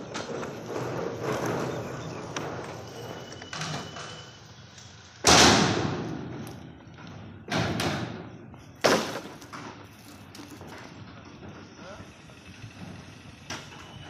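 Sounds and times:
bamboo poles clattering: 8.8 - 11.0.

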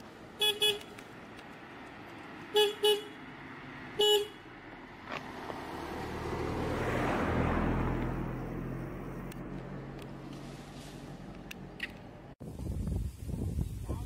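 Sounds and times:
vehicle approaching: 0.0 - 12.4
vehicle horn honking: 0.4 - 0.9, 2.5 - 3.2, 4.0 - 4.5.

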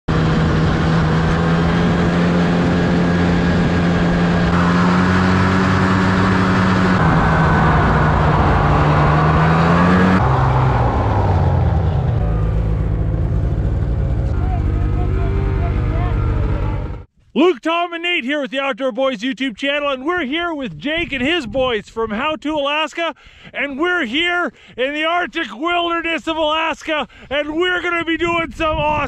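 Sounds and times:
snowmobile engine running: 0.1 - 17.1.

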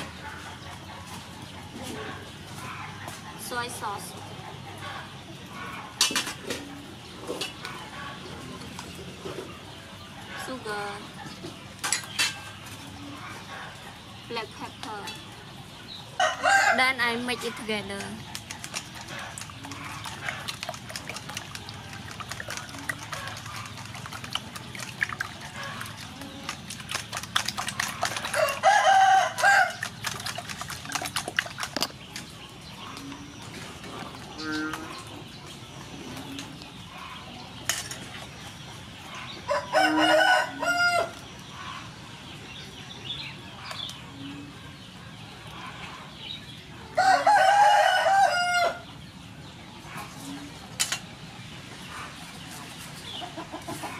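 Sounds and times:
rooster crowing: 16.2 - 16.8, 28.3 - 29.8, 39.5 - 41.2, 47.0 - 48.8.

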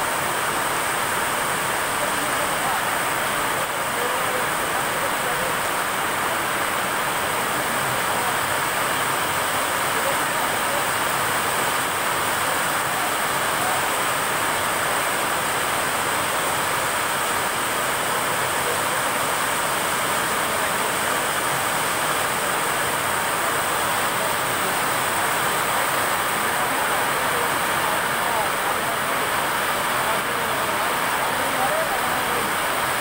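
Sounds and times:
heavy rain falling: 0.0 - 33.0.

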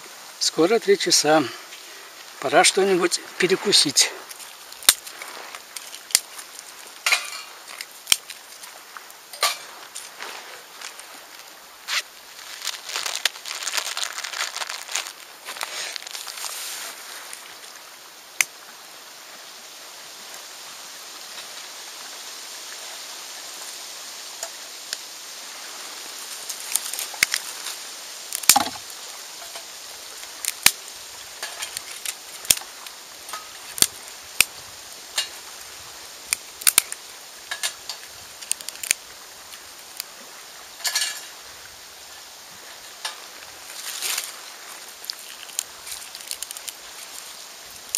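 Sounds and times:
steady hiss: 0.0 - 47.9
wood fire crackling: 0.0 - 47.9
twigs snapping: 4.2 - 17.6, 26.2 - 40.2, 43.0 - 47.9.

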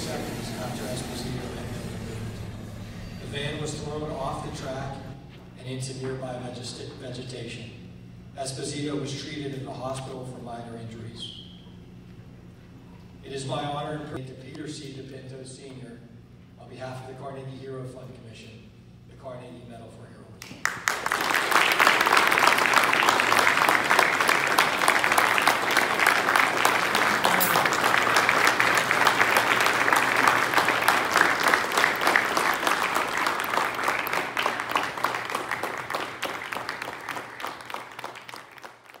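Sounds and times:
audience applauding: 20.4 - 39.0.

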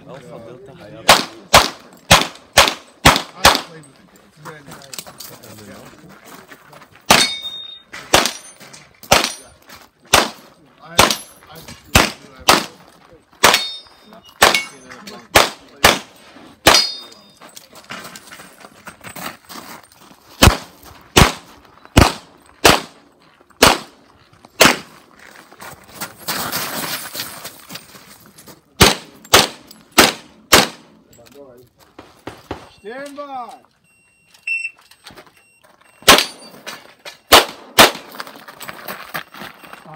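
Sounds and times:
handgun shots: 1.1 - 3.7, 7.1 - 7.5, 8.1 - 8.4, 10.1 - 10.4, 13.4 - 13.7, 14.4 - 17.0, 20.4 - 23.0, 23.6 - 23.9, 24.6 - 24.9, 28.8 - 30.8, 36.0 - 36.4, 37.3 - 38.1
steel targets ringing: 7.1 - 8.6, 13.5 - 15.0, 16.7 - 17.4, 36.0 - 37.4.

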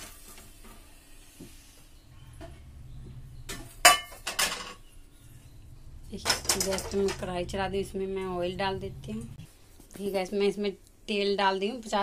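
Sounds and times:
metal cookware clanking: 3.5 - 4.9, 6.1 - 7.5.

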